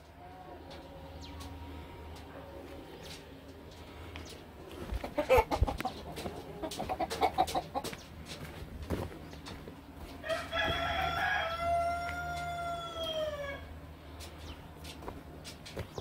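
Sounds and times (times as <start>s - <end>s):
chicken clucking: 0.0s - 16.0s
rooster crowing: 10.2s - 13.8s.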